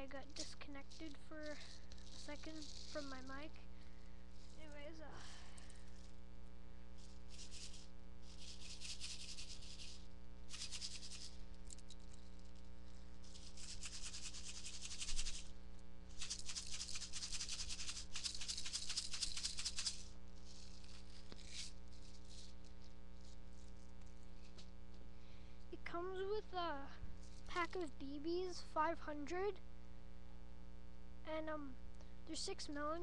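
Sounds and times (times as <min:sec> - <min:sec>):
electrical hum: 0:00.0 - 0:33.0
plastic pack rattling: 0:00.3 - 0:03.4, 0:07.3 - 0:12.6, 0:13.3 - 0:15.5, 0:16.1 - 0:22.5.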